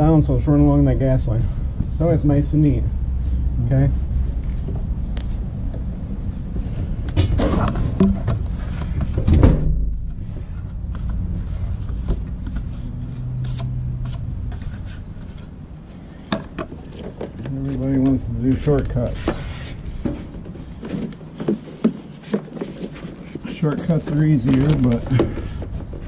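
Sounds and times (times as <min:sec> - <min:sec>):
low rumble: 0:09.2 - 0:14.9
handling rustling and clicks: 0:16.3 - 0:26.0.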